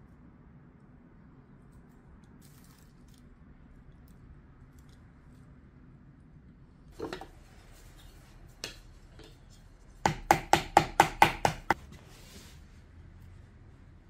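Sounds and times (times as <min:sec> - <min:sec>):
wooden tool knocking on clay: 0:10.0 - 0:11.8.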